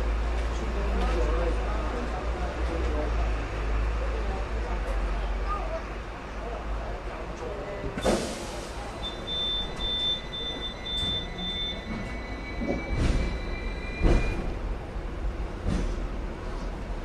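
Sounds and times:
tram rumbling on tracks: 0.0s - 17.0s
short electronic beeps: 9.0s - 14.5s.

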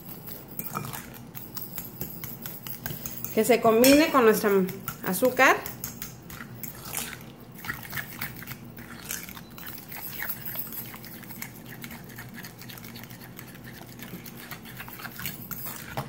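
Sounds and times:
fork mashing wet mixture: 0.0s - 16.0s
fork clicking against glass bowl: 0.6s - 7.1s.

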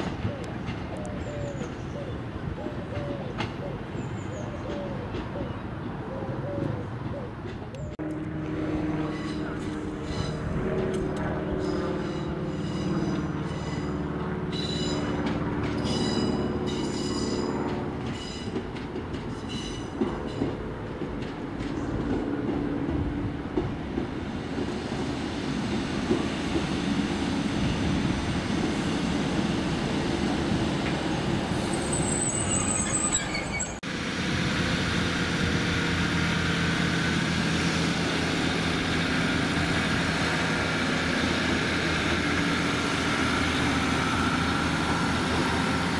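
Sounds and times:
diesel engines humming: 0.0s - 19.2s, 20.7s - 45.9s
train wheels squealing: 9.0s - 10.6s, 11.6s - 15.2s, 15.8s - 18.6s, 19.3s - 20.6s, 31.6s - 33.8s.

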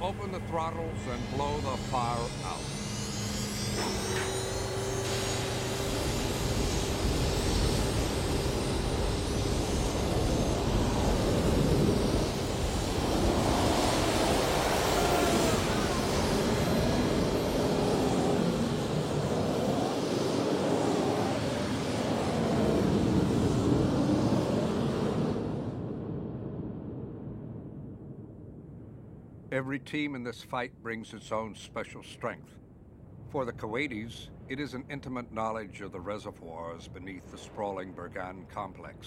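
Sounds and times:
faint steady tone: 0.0s - 19.4s
jet engines at full throttle: 0.0s - 27.3s.

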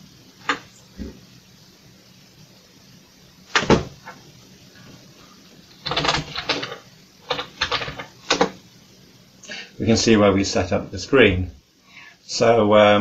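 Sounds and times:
mechanical keyboard typing: 5.8s - 8.5s.

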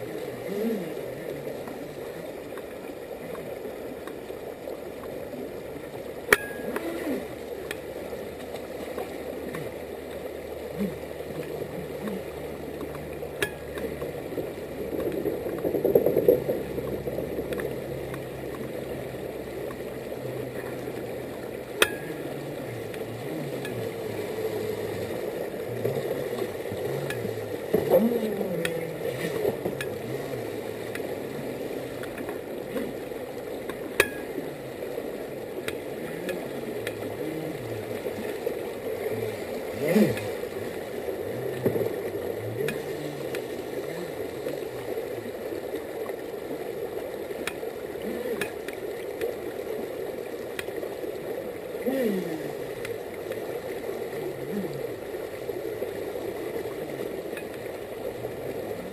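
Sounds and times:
creek rapids rushing: 0.0s - 58.9s
water splashing: 0.0s - 58.9s.

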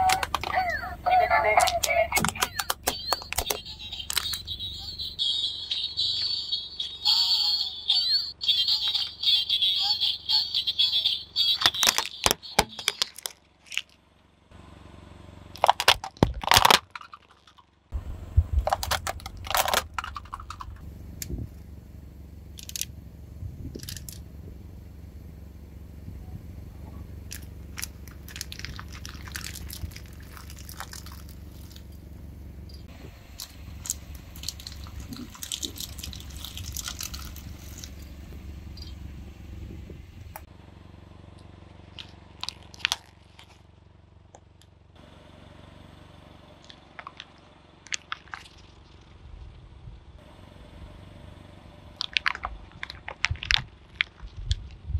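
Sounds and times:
car engine idling: 0.0s - 54.9s
objects crushed under car tyre: 11.6s - 14.1s, 15.6s - 17.9s, 27.3s - 32.0s, 33.4s - 38.2s, 41.9s - 43.8s
low rumble: 17.8s - 54.9s.

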